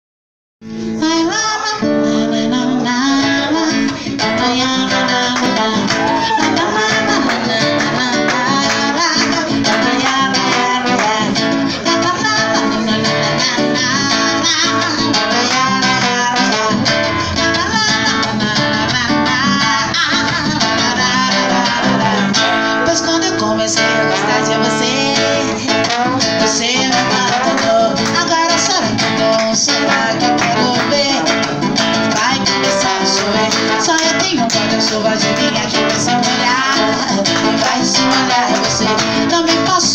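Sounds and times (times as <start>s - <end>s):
acoustic guitar strumming: 0.7s - 39.9s
trombone playing melody: 5.0s - 11.9s, 15.2s - 17.9s, 23.8s - 39.7s.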